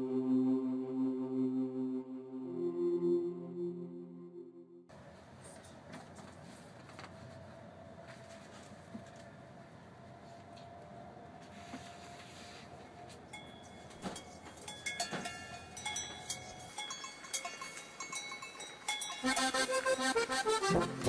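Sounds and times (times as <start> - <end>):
livestock bells clanking: 13.3 - 20.8
accordion music: 19.2 - 21.0.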